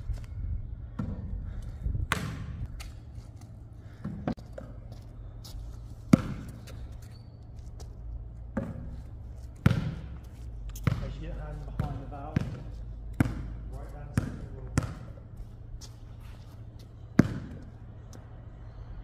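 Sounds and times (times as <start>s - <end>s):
basketball thudding on court: 2.1s - 2.6s, 6.1s - 6.6s, 9.6s - 10.1s, 10.8s - 11.2s, 11.8s - 13.6s, 14.2s - 15.1s, 17.2s - 17.6s.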